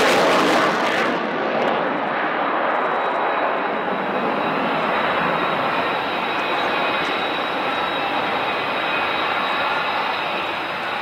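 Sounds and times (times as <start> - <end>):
jet engine roar: 0.0 - 11.0.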